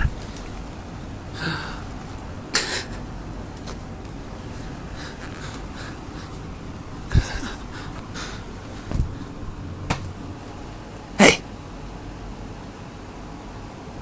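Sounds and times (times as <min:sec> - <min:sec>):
phone rubbing against blanket: 0:04.6 - 0:05.8.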